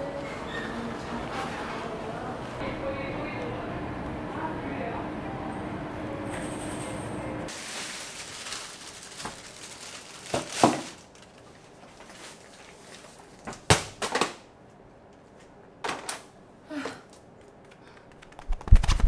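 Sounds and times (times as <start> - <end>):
steady hum: 0.0 - 10.3
plastic bag rustling and crinkling: 7.5 - 13.5.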